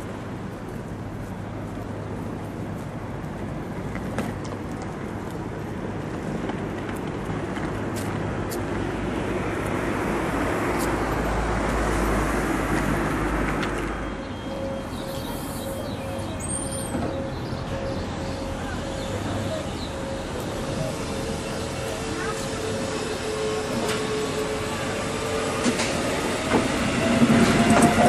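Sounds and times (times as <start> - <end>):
city traffic noise: 0.0 - 28.0
distant train: 0.0 - 28.0
electric train whine: 8.7 - 28.0.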